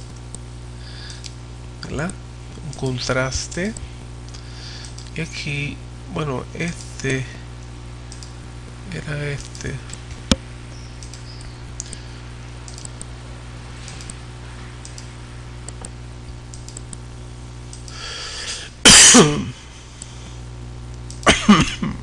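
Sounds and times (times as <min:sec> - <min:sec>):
low electrical hum: 0:00.0 - 0:22.0
computer mouse clicking: 0:04.8 - 0:05.2, 0:08.1 - 0:08.4, 0:10.8 - 0:12.0, 0:12.6 - 0:13.1, 0:13.8 - 0:14.2, 0:14.8 - 0:17.0, 0:17.7 - 0:18.0
man coughing: 0:18.5 - 0:19.7, 0:21.2 - 0:22.0.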